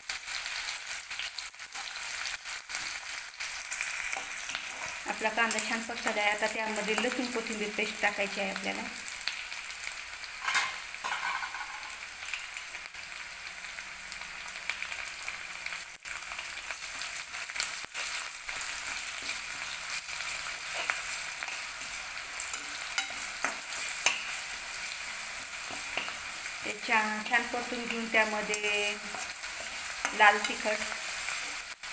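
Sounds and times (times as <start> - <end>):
onions sizzling in hot oil: 0.0 - 31.9
spatula scraping pan: 4.0 - 5.6, 17.9 - 26.6, 27.4 - 31.7.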